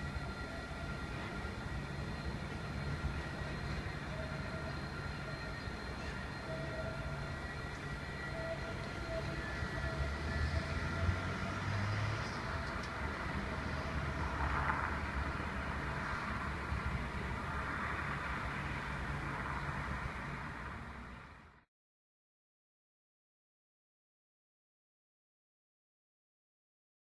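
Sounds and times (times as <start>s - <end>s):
distant tram rumbling: 0.0s - 21.6s
road traffic passing: 0.0s - 21.6s.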